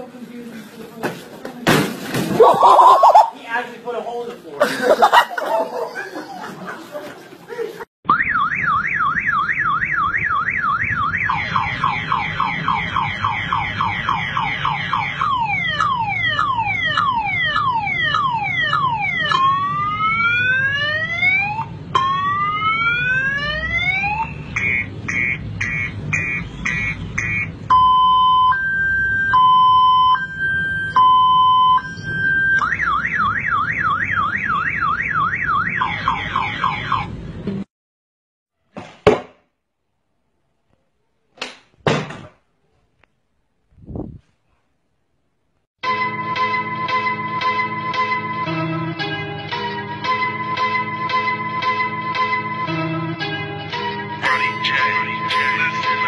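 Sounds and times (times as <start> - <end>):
man imitating car alarm: 54.2 - 56.0.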